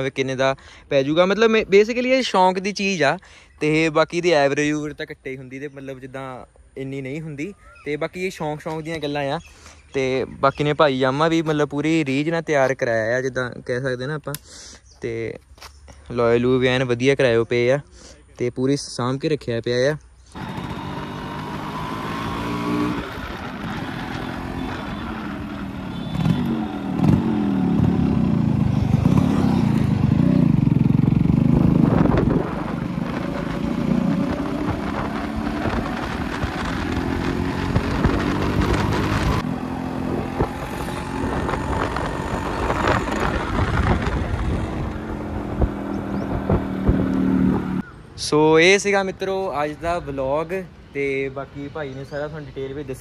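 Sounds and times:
two-stroke motorcycle engine revving: 0:20.3 - 0:47.9.

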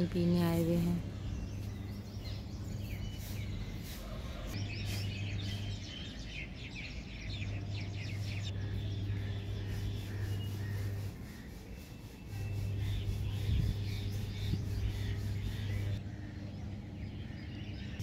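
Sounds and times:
birds chirping: 0:00.0 - 0:18.0
low steady hum: 0:04.5 - 0:18.0.

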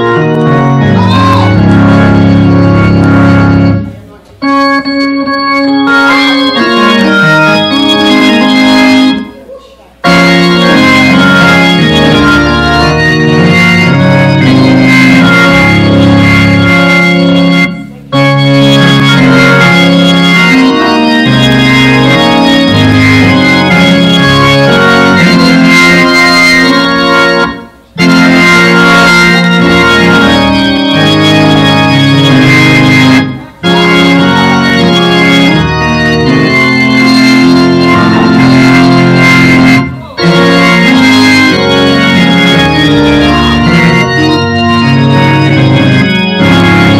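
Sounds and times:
organ chords: 0:00.0 - 0:46.9.

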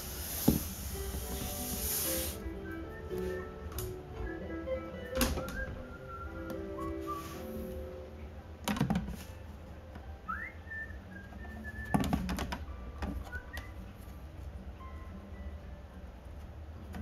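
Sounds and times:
thin whistle-like notes: 0:01.3 - 0:07.9, 0:10.2 - 0:12.1.

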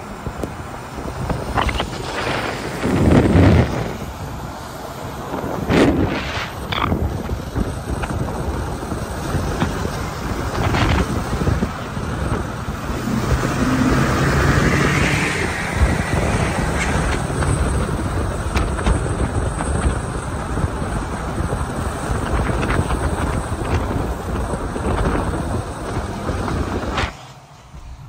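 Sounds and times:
wind and road noise: 0:00.0 - 0:28.0
wind buffeting microphone: 0:00.0 - 0:28.0.

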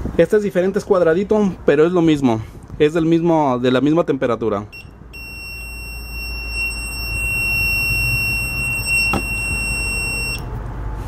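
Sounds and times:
multimeter continuity beep: 0:04.7 - 0:10.5.

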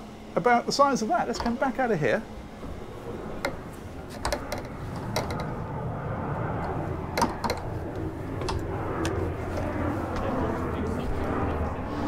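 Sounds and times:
low background rumble: 0:00.0 - 0:12.0
sharp clicks and knocks: 0:01.3 - 0:01.6, 0:03.4 - 0:05.6, 0:06.6 - 0:09.7.

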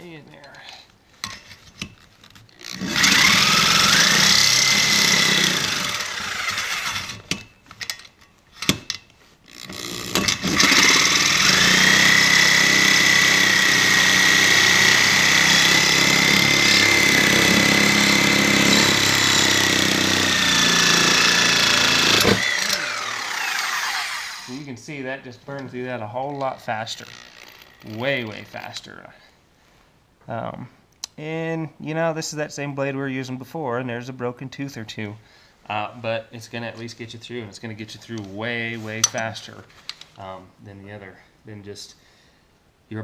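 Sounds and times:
reciprocating saw cutting metal: 0:02.6 - 0:07.4, 0:09.5 - 0:24.6
saw knocks: 0:10.1 - 0:23.0.

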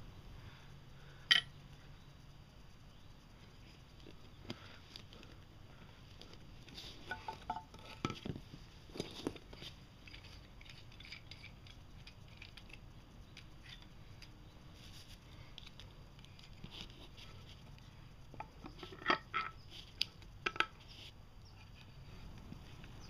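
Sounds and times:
faint metal clink: 0:01.3 - 0:01.6.

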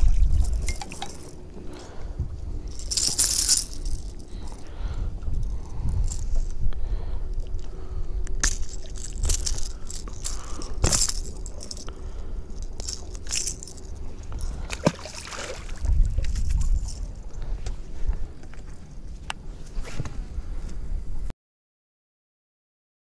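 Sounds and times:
wind rumble on microphone: 0:00.0 - 0:21.3
fishing lure hooks jingling: 0:00.3 - 0:01.5, 0:02.6 - 0:04.7, 0:05.3 - 0:06.6, 0:08.4 - 0:15.3, 0:16.0 - 0:17.4.

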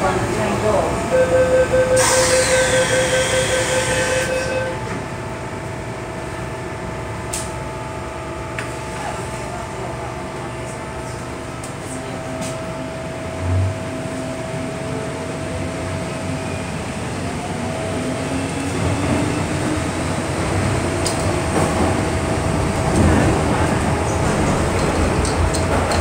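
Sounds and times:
train equipment humming: 0:00.0 - 0:26.0
door warning tone: 0:01.1 - 0:05.0
train doors shutting: 0:01.6 - 0:05.2, 0:18.5 - 0:26.0.

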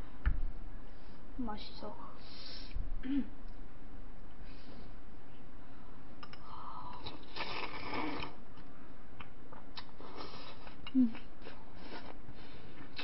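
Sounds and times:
slurping: 0:07.0 - 0:08.4.

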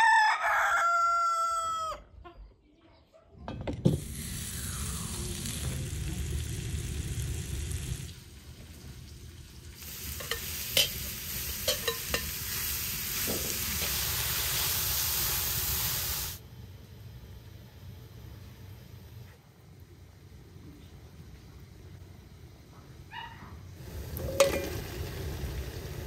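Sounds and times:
onions sizzling in butter: 0:03.9 - 0:16.4, 0:23.8 - 0:26.0
metal ladle clicking on pot: 0:11.6 - 0:12.3.

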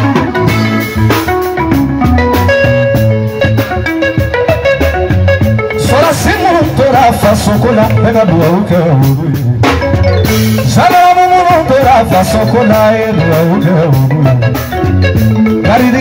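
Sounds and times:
band playing: 0:00.0 - 0:16.0
man singing into a microphone: 0:05.8 - 0:09.6, 0:10.6 - 0:14.6, 0:15.5 - 0:16.0.

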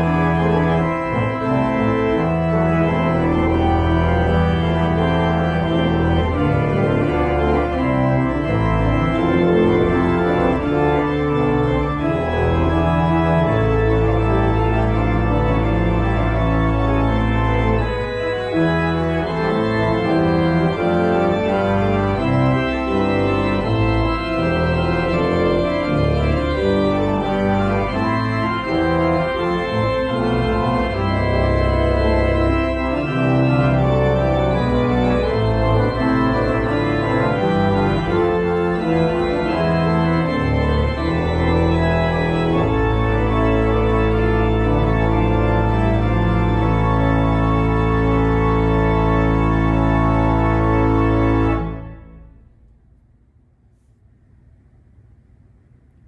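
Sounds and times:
pipe organ playing loudly: 0:00.0 - 0:52.4.

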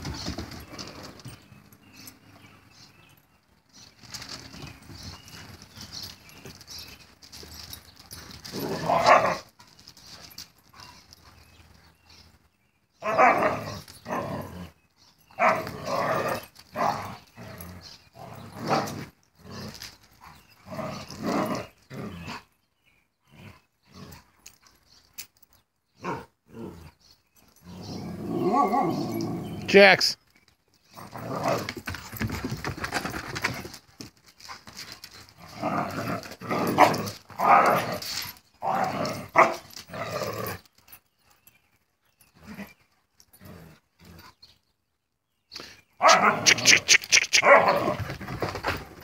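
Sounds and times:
dogs growling: 0:08.0 - 0:09.5, 0:13.0 - 0:22.5, 0:23.2 - 0:24.6, 0:26.0 - 0:29.7, 0:30.9 - 0:33.8, 0:34.5 - 0:40.7, 0:42.3 - 0:44.5, 0:46.0 - 0:48.8
dogs barking: 0:13.0 - 0:13.7, 0:15.4 - 0:17.1, 0:39.3 - 0:39.6, 0:46.0 - 0:48.0.

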